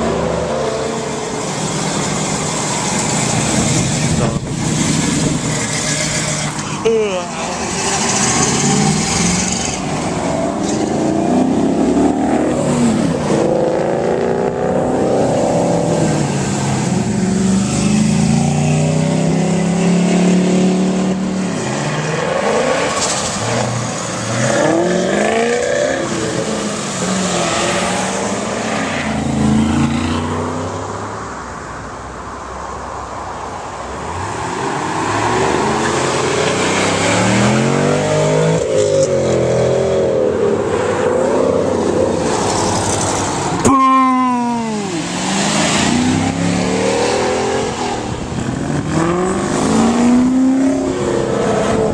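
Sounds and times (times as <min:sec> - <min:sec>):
car engines revving past: 0:00.0 - 0:31.5, 0:33.0 - 0:51.9.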